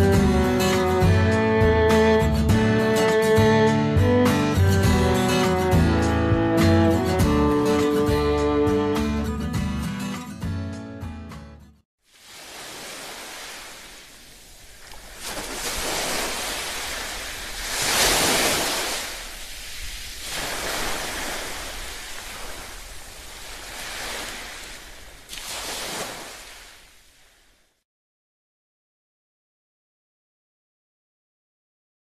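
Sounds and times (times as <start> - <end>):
sea surf washing on shore: 12.1 - 27.7.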